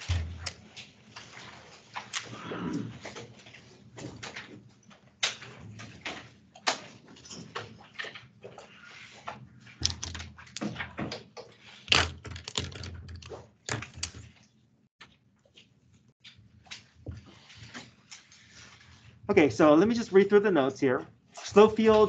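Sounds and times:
paper and small objects clicking: 9.8s - 10.7s.

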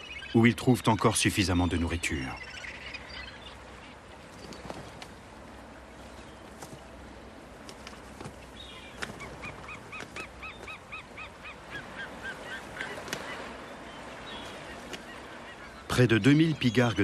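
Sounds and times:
faint ambient noise: 0.0s - 17.0s
eagle calling: 8.7s - 17.0s.

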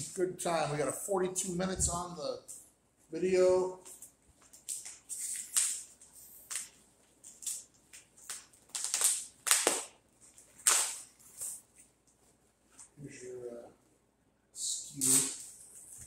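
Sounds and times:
packaging crinkling: 3.9s - 11.6s.

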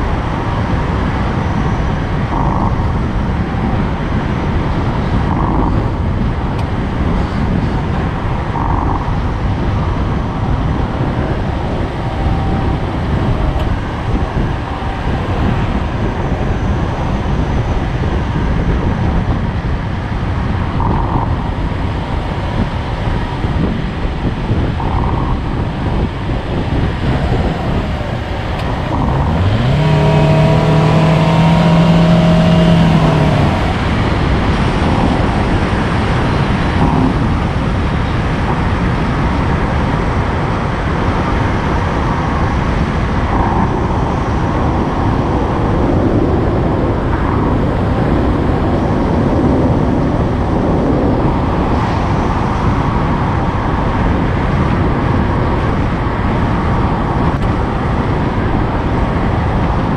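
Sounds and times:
road and wind rumble: 0.0s - 59.9s
engine note rising in pitch: 0.4s - 19.4s, 24.7s - 37.3s.

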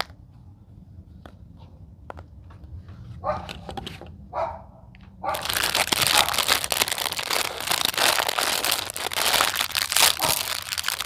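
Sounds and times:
plastic packaging crinkling: 5.3s - 11.0s.

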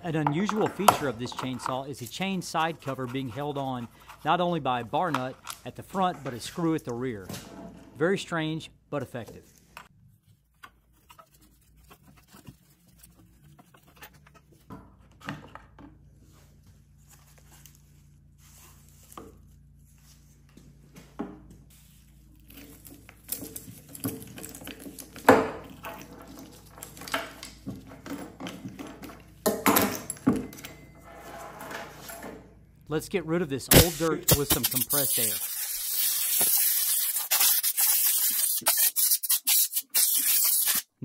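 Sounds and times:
metal clicks scrapes and rattles: 0.3s - 4.4s.

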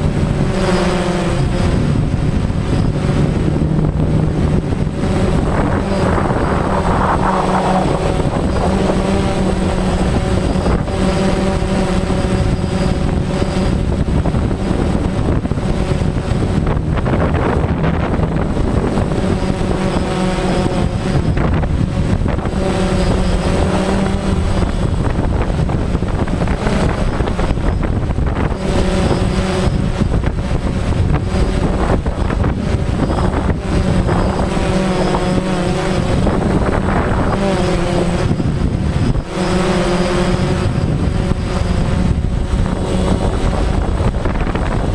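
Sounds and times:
helicopter engine and rotor drone: 0.0s - 44.9s.

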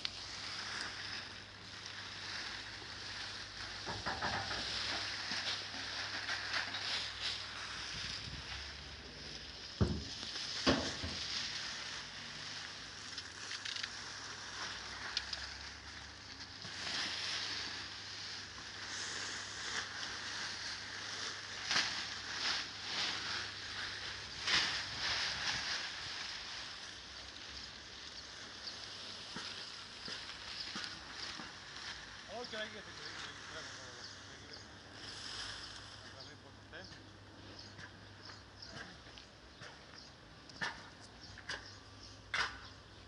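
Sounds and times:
tarpaulin swishes: 0.0s - 3.8s, 4.4s - 34.4s
plastic sheets rustling: 0.0s - 36.0s
plastic tarpaulin crinkling: 0.0s - 36.5s.

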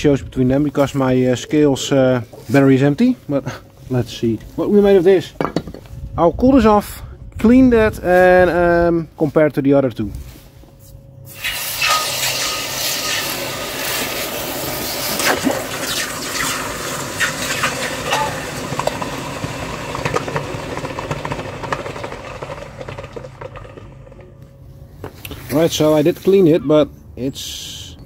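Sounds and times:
hot metal sizzling in water: 11.3s - 20.2s.

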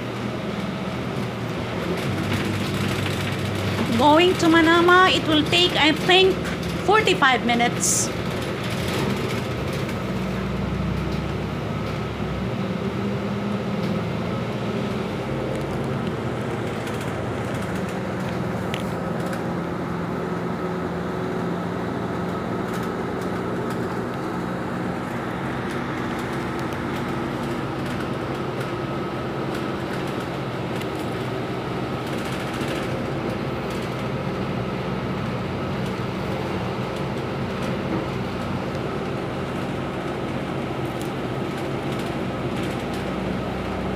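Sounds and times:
bus engine drone: 0.0s - 43.9s
road noise: 0.0s - 43.9s.

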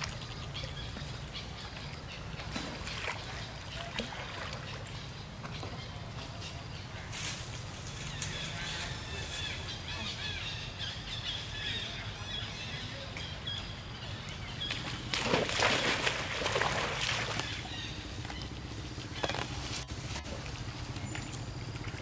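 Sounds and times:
water splashing: 0.0s - 5.5s, 14.4s - 22.0s
small birds chirping: 0.0s - 19.8s.

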